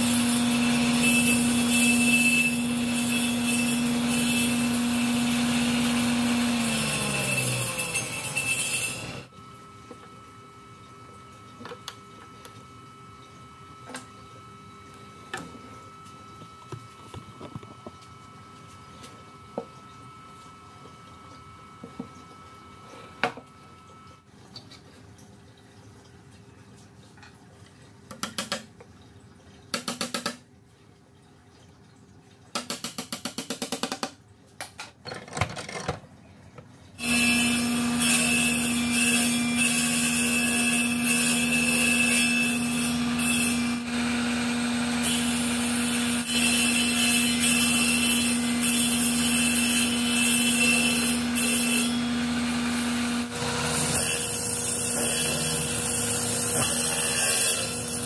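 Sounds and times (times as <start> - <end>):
table saw cutting wood: 0.0 - 9.3, 37.0 - 58.0.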